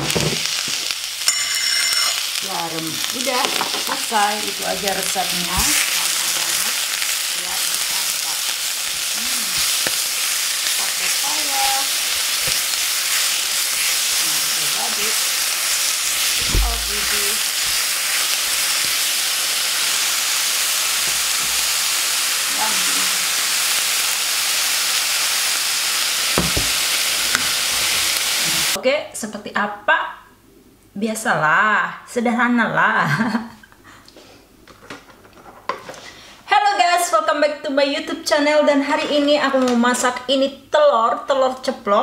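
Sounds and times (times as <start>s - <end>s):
leaves sizzling in hot oil: 0.0s - 28.8s
knocks: 26.4s - 26.7s.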